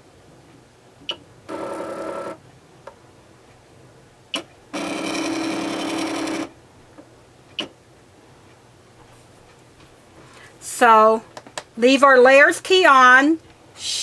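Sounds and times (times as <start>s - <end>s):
die-cutting machine motors running: 4.7s - 6.5s.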